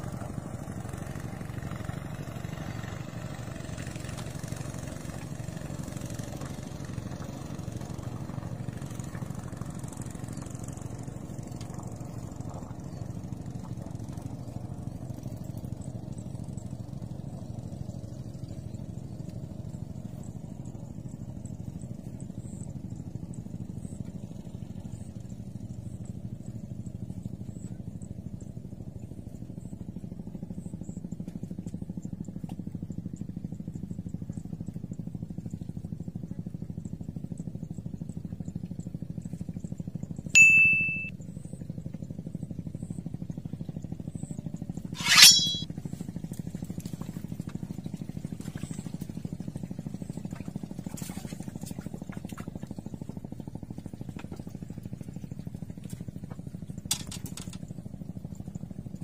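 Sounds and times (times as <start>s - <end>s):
sharp ringing dings: 40.4s - 41.1s, 45.0s - 45.6s.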